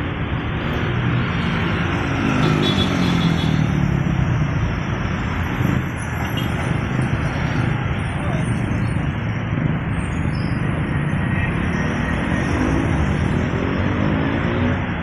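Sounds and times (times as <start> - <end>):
motorcycles driving by: 0.0 - 9.9.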